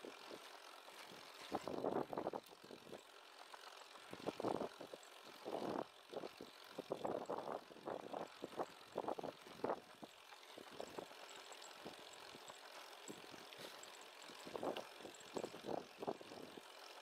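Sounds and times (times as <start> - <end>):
bicycle rattle: 0.0 - 17.0.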